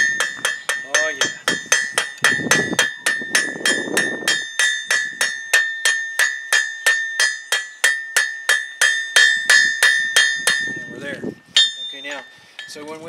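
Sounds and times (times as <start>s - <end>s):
anvil ringing: 0.0s - 11.0s, 11.6s - 12.9s
hammer striking hot iron on anvil: 0.0s - 11.0s, 11.6s - 12.8s.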